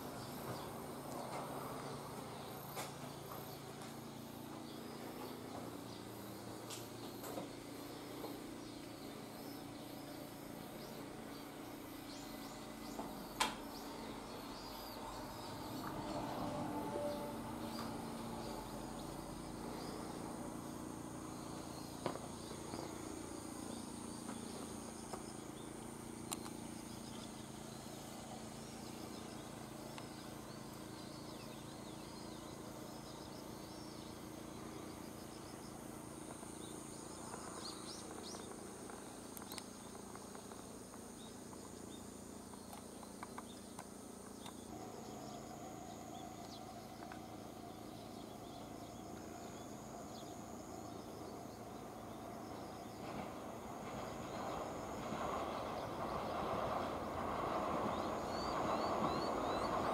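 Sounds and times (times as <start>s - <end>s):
insects trilling: 0.0s - 59.9s
steady hum: 0.0s - 59.9s.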